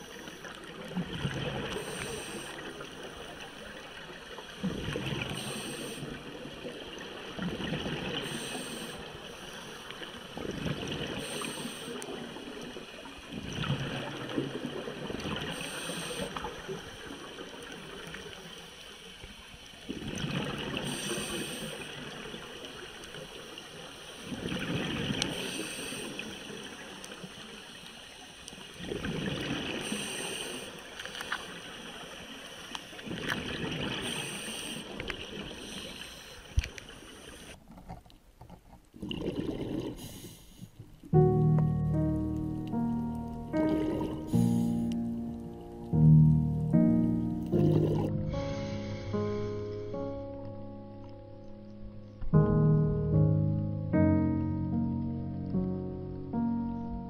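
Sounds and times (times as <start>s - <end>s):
exhaled bubbles gurgling: 0.0s - 9.2s, 10.3s - 18.4s, 19.8s - 22.9s, 28.8s - 30.7s, 38.9s - 48.4s
diver inhaling through regulator: 1.7s - 2.7s, 5.3s - 6.2s, 8.2s - 9.8s, 11.2s - 12.1s, 15.5s - 16.4s, 20.8s - 22.0s, 25.3s - 26.4s, 29.8s - 30.8s, 34.0s - 35.0s, 35.6s - 36.6s, 39.4s - 40.8s, 43.8s - 45.0s, 47.6s - 50.1s.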